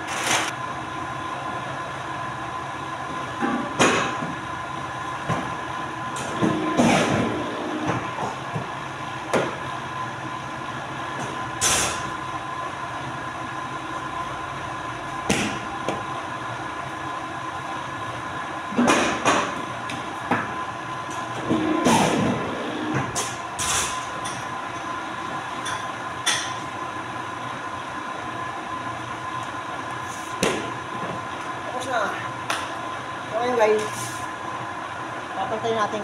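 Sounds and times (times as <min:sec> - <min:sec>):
paper cutter mechanical hum: 0:05.7 - 0:08.8, 0:19.8 - 0:24.1.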